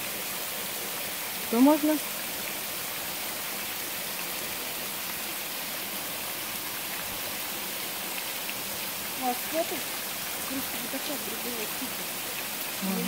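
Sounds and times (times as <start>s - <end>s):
small waterfall splashing: 0.0s - 13.0s.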